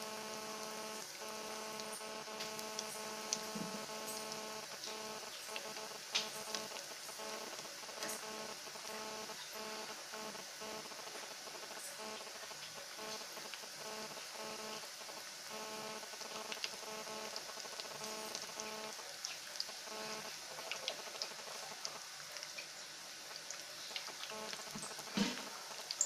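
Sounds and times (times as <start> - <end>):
food deep-frying in oil: 0.0 - 26.0
oil popping and crackling: 1.0 - 8.9, 16.3 - 26.0.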